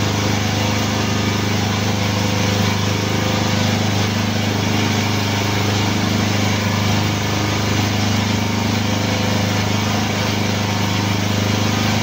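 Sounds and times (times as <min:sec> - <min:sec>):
hydraulic power unit humming: 0:00.0 - 0:12.0.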